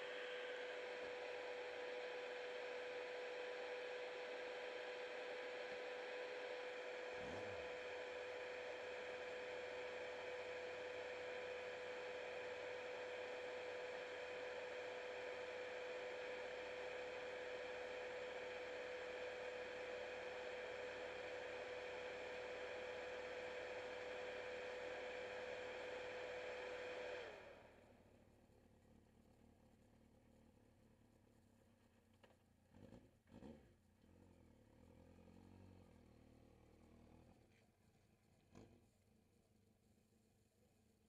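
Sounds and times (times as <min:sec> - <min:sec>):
high motor hum-whine: 0:00.0 - 0:27.8.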